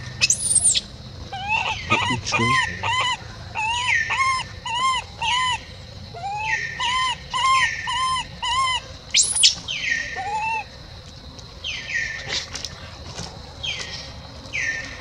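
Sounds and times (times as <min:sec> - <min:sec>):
infant monkey whimpering calls: 0:00.2 - 0:09.5, 0:10.1 - 0:10.7.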